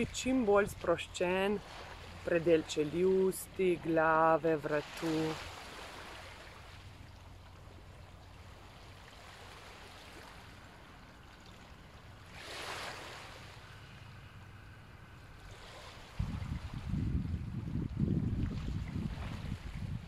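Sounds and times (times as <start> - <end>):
wind buffeting microphone: 15.6 - 20.0.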